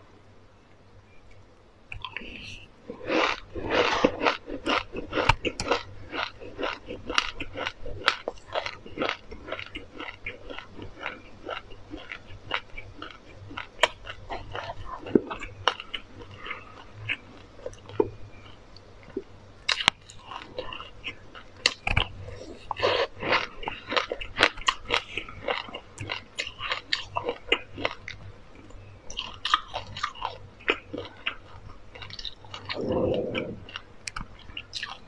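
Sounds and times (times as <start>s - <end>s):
chewing crisp seeds: 1.9s - 35.0s.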